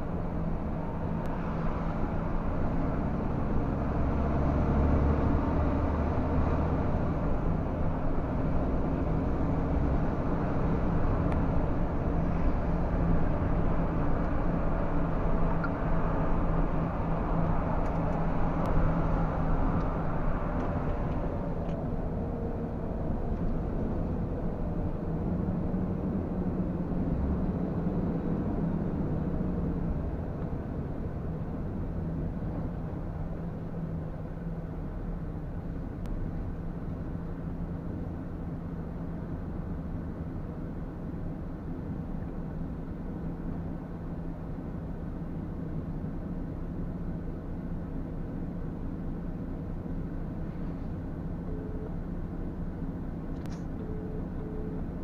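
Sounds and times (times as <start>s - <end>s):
road noise: 0.0s - 55.0s.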